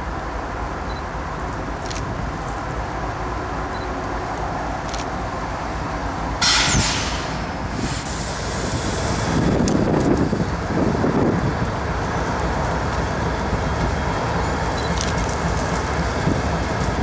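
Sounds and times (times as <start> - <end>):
locomotive diesel rumble: 0.0 - 17.0
loud air hiss: 6.4 - 9.6.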